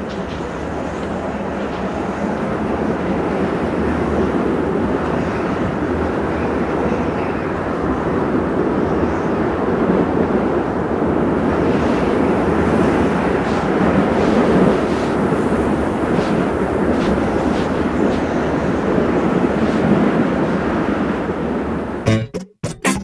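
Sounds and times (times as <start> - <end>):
blizzard wind rushing: 10.0 - 22.0.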